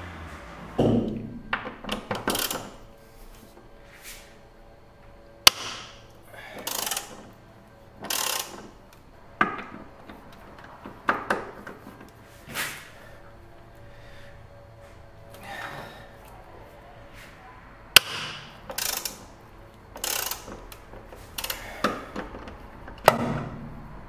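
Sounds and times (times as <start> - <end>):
ratchet wrench clicking: 2.1 - 2.8, 6.6 - 7.4, 8.0 - 8.8, 18.0 - 23.2.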